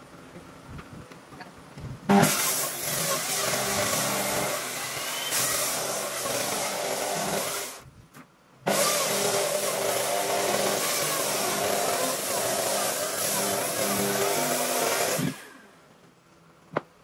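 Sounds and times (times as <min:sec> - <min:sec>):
power tool working wood: 0:02.1 - 0:07.8, 0:08.7 - 0:15.7.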